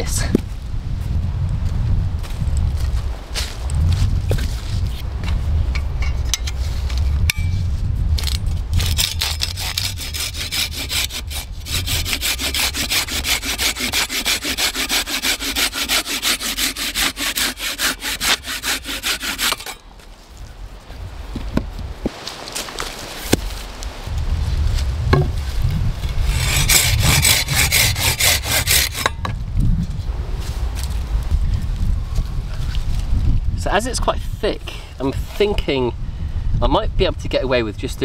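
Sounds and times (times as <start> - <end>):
hand saw cutting log: 8.2 - 19.8, 26.0 - 29.3
low rumble: 23.8 - 33.6
log knocking into place: 25.1 - 25.4.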